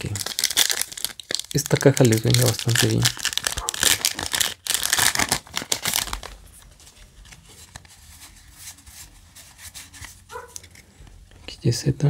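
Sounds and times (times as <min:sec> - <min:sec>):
foil pack crinkling and tearing: 0:00.0 - 0:06.7
cards rustling: 0:00.0 - 0:11.5.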